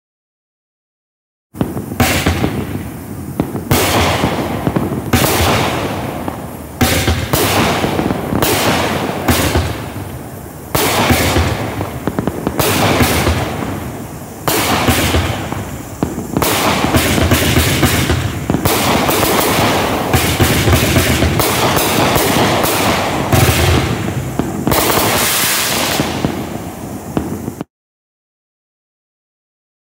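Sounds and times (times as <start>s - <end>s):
fireworks shots and aerial bursts: 1.5s - 27.7s.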